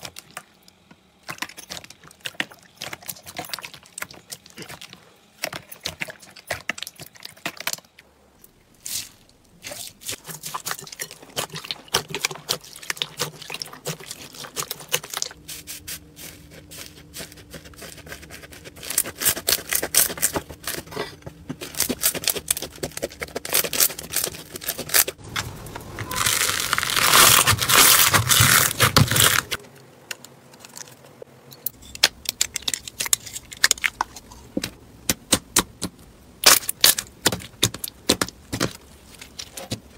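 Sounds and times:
slime crackling and popping: 21.7s - 29.6s.

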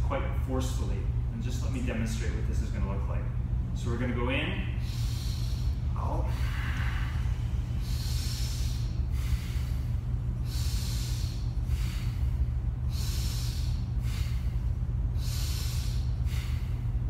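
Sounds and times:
air conditioner hum: 0.0s - 17.0s
man breathing forcefully: 4.6s - 17.0s.

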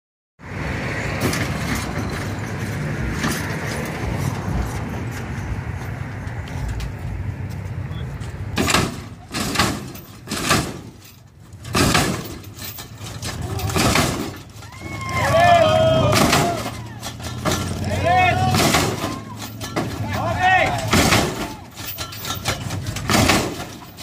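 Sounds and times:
hydraulic pumps running: 8.6s - 24.0s.

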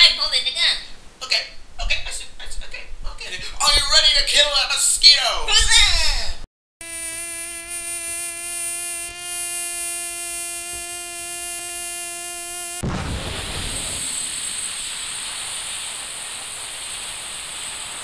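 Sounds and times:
hiss with thin high whistle: 6.8s - 12.8s, 13.4s - 18.0s
mosquito buzzing: 6.8s - 12.8s.

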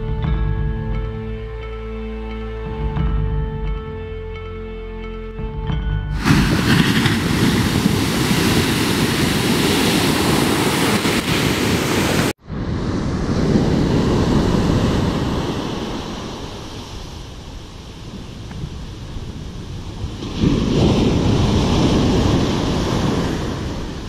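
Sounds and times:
ocean surf breaking: 6.1s - 24.0s
wind buffeting microphone: 6.1s - 24.0s.

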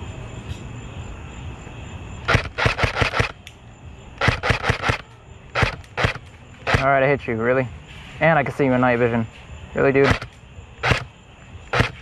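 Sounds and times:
airsoft gun firing sharp shots: 2.3s - 3.4s, 4.2s - 7.0s, 10.0s - 11.1s, 11.7s - 12.0s.

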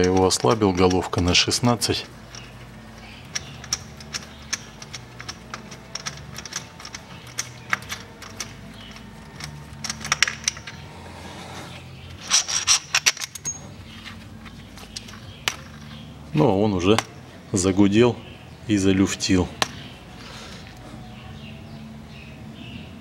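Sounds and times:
metallic clicks and clinks: 0.0s - 10.9s, 12.1s - 16.1s.

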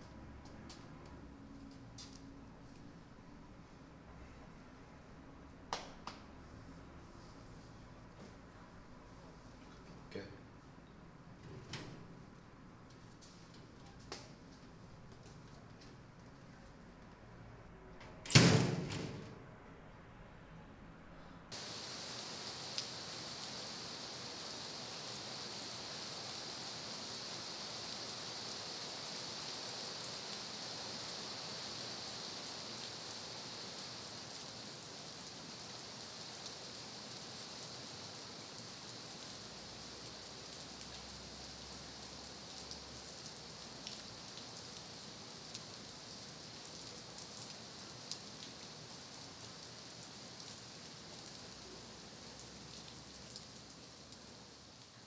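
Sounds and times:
steady rain: 21.5s - 55.0s
rain drop ticks: 21.6s - 23.5s, 43.8s - 44.6s.

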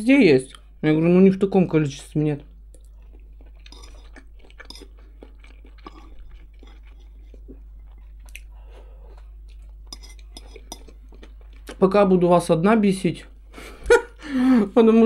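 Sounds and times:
steady low hum: 0.0s - 15.0s
person chewing food: 2.6s - 11.8s.

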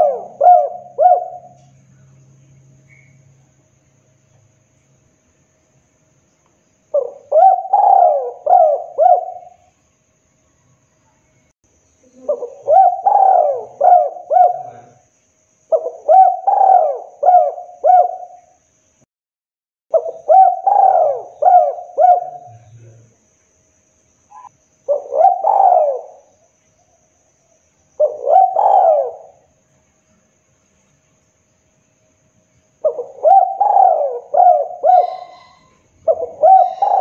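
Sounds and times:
dove cooing: 0.0s - 1.7s, 6.9s - 9.7s, 12.0s - 15.0s, 15.7s - 18.5s, 19.9s - 23.0s, 24.4s - 26.4s, 28.0s - 29.5s, 32.8s - 37.0s.

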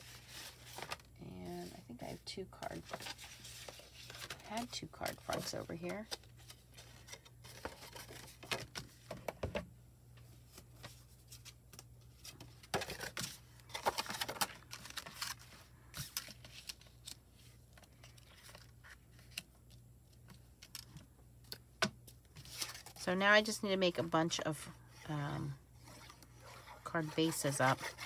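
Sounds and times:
paper card rustling and sliding: 0.0s - 1.1s, 2.8s - 9.1s, 22.4s - 23.0s, 25.7s - 28.0s.

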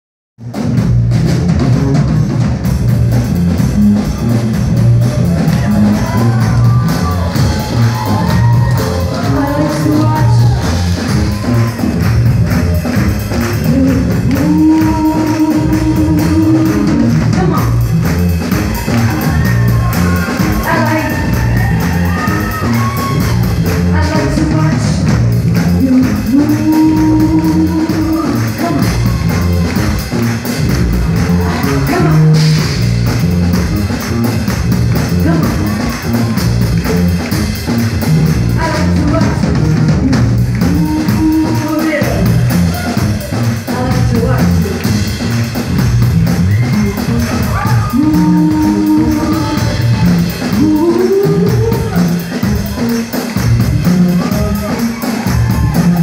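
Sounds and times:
live band playing: 0.4s - 56.0s
person singing: 5.5s - 11.8s, 13.4s - 17.8s, 25.7s - 29.7s, 38.5s - 44.9s, 47.0s - 53.2s.

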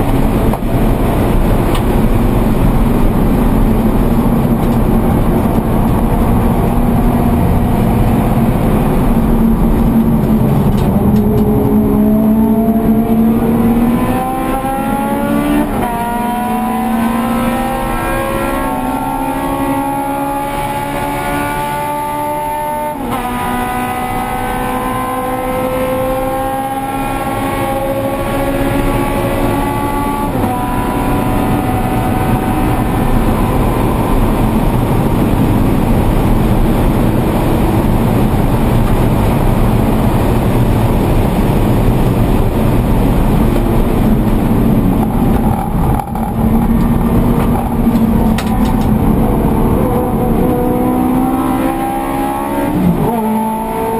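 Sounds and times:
car engine accelerating: 0.0s - 53.9s
rushing road noise: 0.0s - 53.9s.

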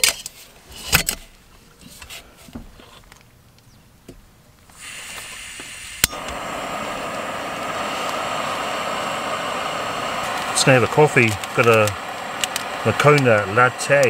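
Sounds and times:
gas hissing from burner: 4.7s - 14.0s
igniter click: 5.2s - 8.6s.

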